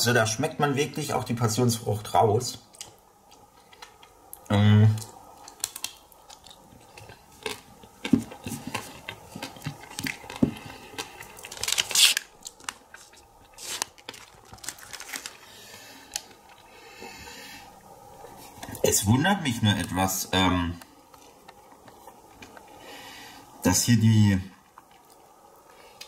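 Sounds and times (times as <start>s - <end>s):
foil wrapper crinkling: 5.0s - 16.7s.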